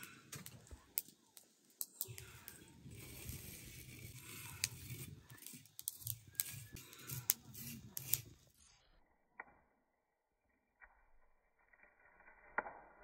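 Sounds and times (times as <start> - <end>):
stick scraping seeds on griddle: 1.8 - 8.6.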